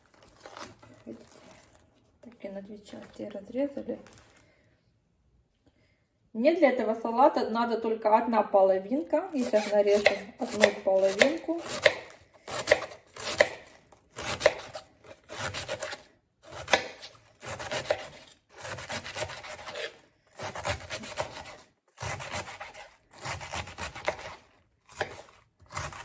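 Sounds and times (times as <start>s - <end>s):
knife slicing cabbage on board: 9.4s - 26.0s.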